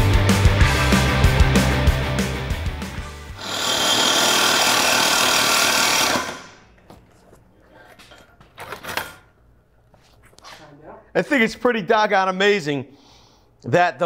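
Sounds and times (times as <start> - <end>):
reciprocating saw cutting steel: 3.4 - 6.6.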